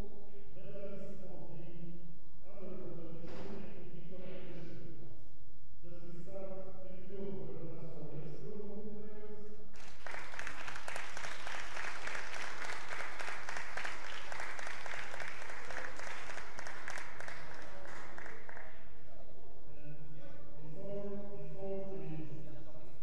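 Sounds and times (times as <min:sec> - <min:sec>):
audience applauding: 0:09.8 - 0:18.8.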